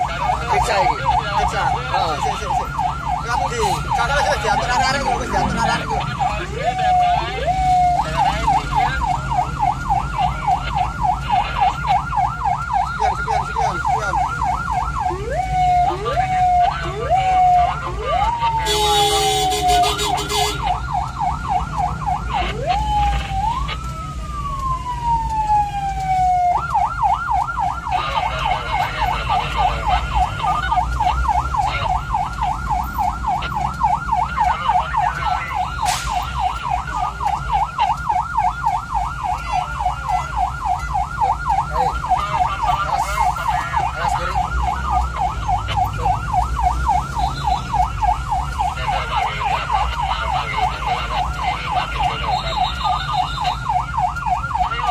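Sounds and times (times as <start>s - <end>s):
ambulance siren: 0.0s - 54.9s
harsh horn blast: 18.6s - 20.6s.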